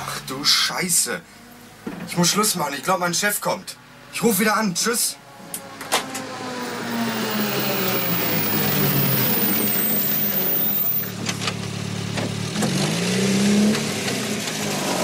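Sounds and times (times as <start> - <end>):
jeep engine running: 5.8 - 12.6.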